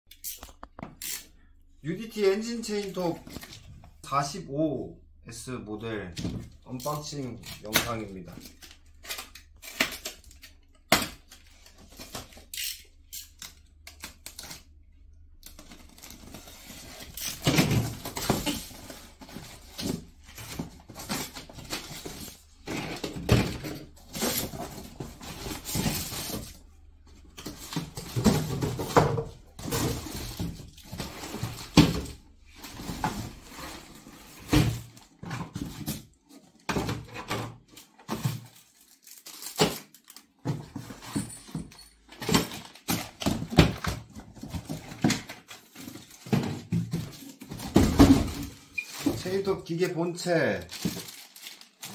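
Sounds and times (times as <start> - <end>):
plastic wrapping crinkling: 38.5 - 40.4, 48.4 - 51.9.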